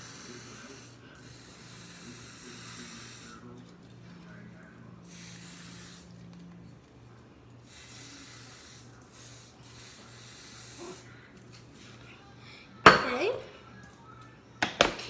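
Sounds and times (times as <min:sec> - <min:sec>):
aerosol spray can hissing: 0:00.0 - 0:03.4, 0:05.1 - 0:06.1, 0:07.7 - 0:11.0.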